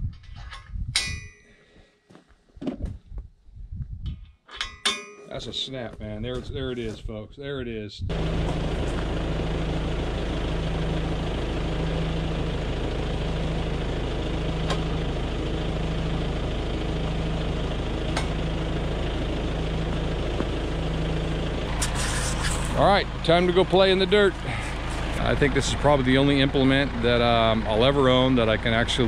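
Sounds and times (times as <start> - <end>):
tractor diesel engine idling: 8.1 - 29.0.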